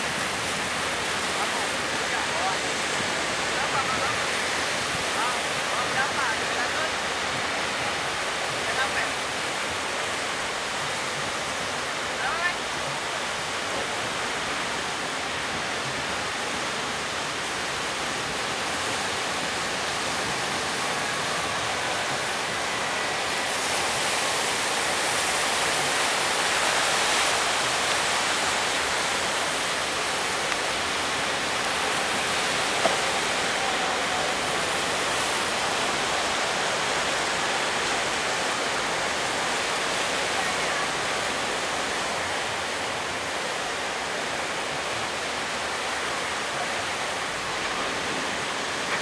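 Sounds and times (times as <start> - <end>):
ocean waves breaking: 0.0 - 49.0.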